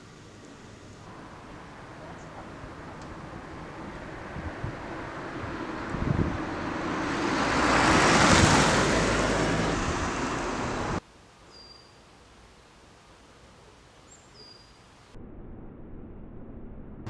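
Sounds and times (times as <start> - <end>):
car driving past: 1.1 - 11.0.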